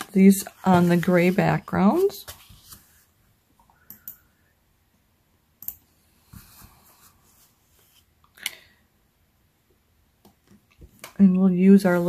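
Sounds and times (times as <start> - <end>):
paper sliding: 0.0 - 3.0.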